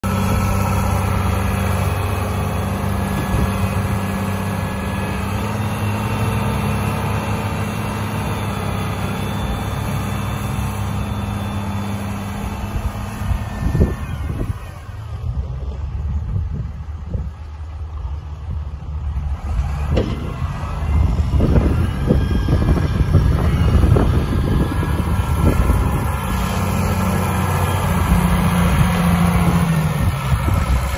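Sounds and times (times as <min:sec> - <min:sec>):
tractor diesel engine running: 0:00.0 - 0:30.9
low thumps: 0:19.8 - 0:21.8.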